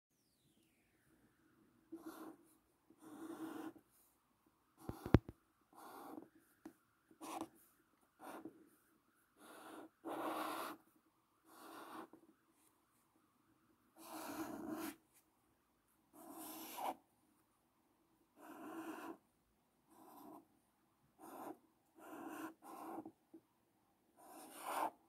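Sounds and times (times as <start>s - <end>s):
marker drawing on paper: 1.9s - 4.0s, 4.8s - 7.6s, 8.2s - 8.6s, 9.3s - 10.9s, 11.5s - 12.3s, 14.0s - 15.0s, 16.1s - 17.0s, 18.4s - 19.2s, 19.9s - 20.5s, 21.2s - 23.2s, 24.2s - 25.0s.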